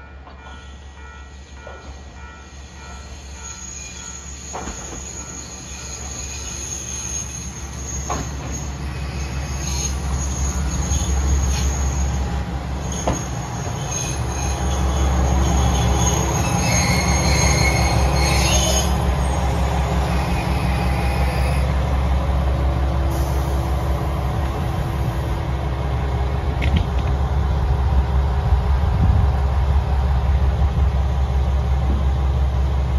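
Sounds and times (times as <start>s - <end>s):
diesel railcar engine rumble: 0.0s - 32.9s
high brake squeal: 1.8s - 21.8s.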